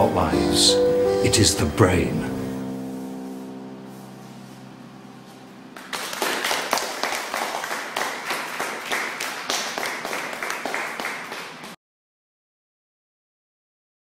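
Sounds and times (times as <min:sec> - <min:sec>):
held musical chord: 0:00.0 - 0:06.9
crowd applause: 0:05.8 - 0:11.8.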